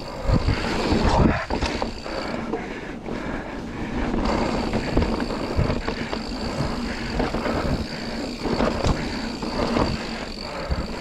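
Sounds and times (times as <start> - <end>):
bike rattling over bumps: 0.0 - 11.0
tyres rumbling on dirt: 3.8 - 11.0.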